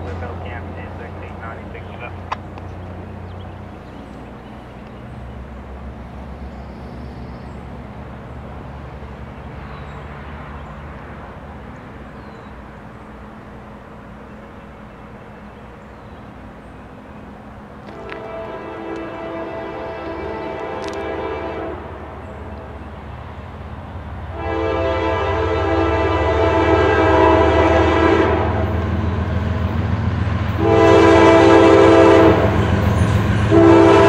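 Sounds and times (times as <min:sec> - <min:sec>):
diesel locomotive drone: 0:00.0 - 0:34.0
locomotive air horn: 0:17.9 - 0:22.1, 0:24.3 - 0:28.8, 0:30.6 - 0:34.0.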